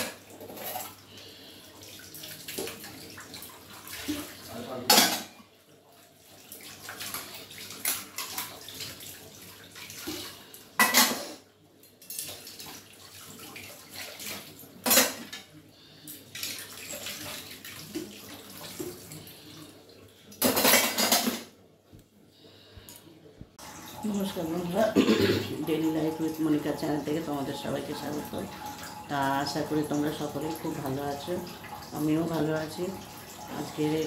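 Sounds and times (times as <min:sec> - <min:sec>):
water running from tap: 0:00.0 - 0:05.0, 0:05.6 - 0:10.9, 0:12.0 - 0:14.9, 0:16.3 - 0:19.8, 0:23.6 - 0:34.0
utensils clinking and clattering: 0:14.8 - 0:15.5, 0:20.4 - 0:21.5.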